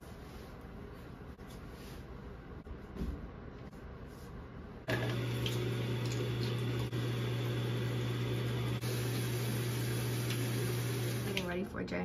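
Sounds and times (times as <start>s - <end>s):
tap running into a sink: 4.9s - 11.5s.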